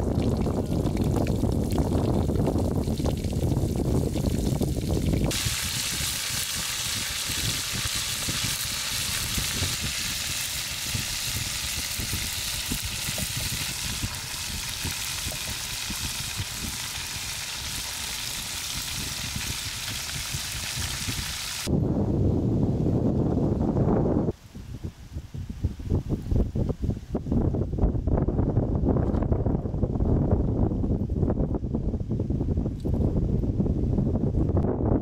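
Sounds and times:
deep-frying sizzle with crackles: 0.0 - 21.7.

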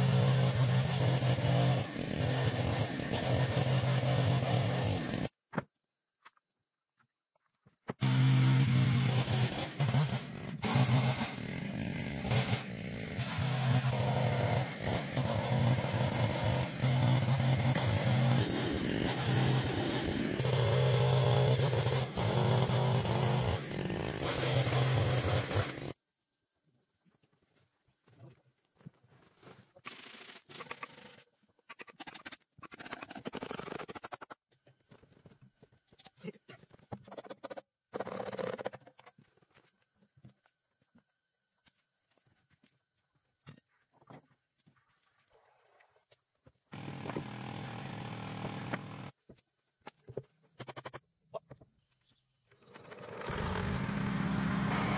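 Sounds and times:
chainsaw cutting log: 0.0 - 5.4, 7.9 - 26.0, 29.8 - 31.2, 31.8 - 34.4, 36.9 - 38.9, 46.7 - 49.2, 52.6 - 54.9.

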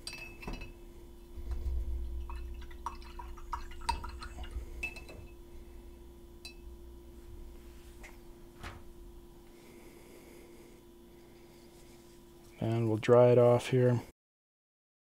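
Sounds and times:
brush clinking against cup: 0.0 - 0.8, 2.3 - 5.4, 6.4 - 6.6.

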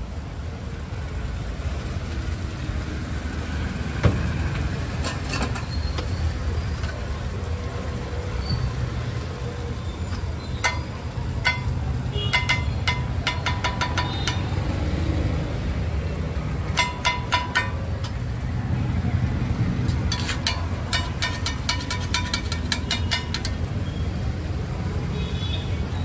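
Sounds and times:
street traffic rumble: 0.0 - 26.0
spatula clanging on iron griddle: 10.5 - 14.6, 16.7 - 18.4, 19.8 - 23.8.

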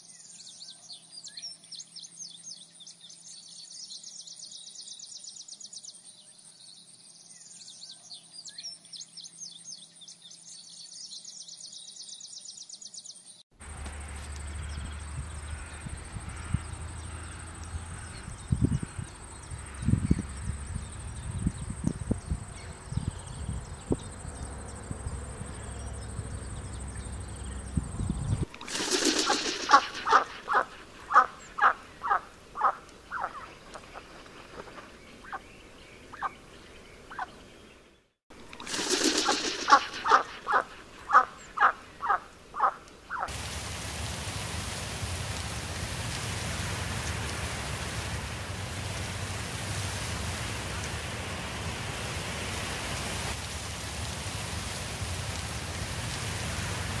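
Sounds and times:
wind over grass: 13.6 - 42.2, 43.3 - 57.0
ducks quacking: 28.6 - 35.4, 38.7 - 43.3.

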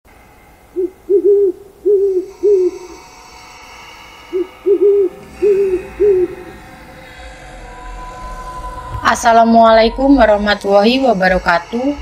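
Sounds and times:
owl hooting: 0.7 - 3.0, 4.3 - 7.2.

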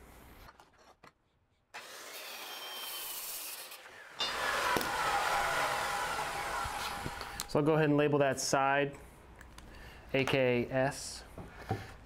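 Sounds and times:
circular saw winding down: 1.8 - 7.6.

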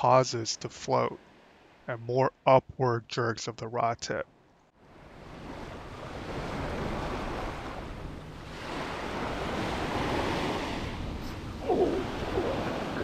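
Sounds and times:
ocean surf washing on beach: 4.8 - 13.0
wind buffeting microphone: 5.4 - 13.0.

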